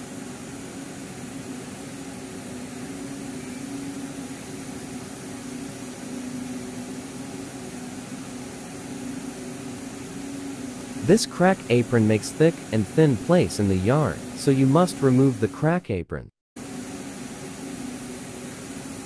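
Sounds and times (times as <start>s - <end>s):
spinning machinery drone: 0.0s - 15.8s
machinery hiss: 1.7s - 15.6s.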